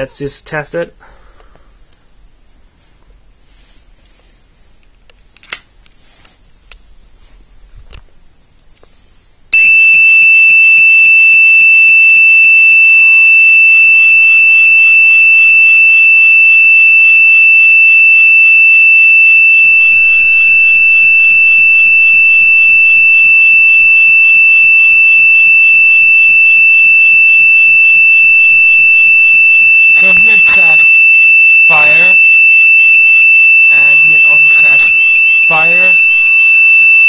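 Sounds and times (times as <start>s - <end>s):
fire alarm sounder tone: 9.6s - 37.0s.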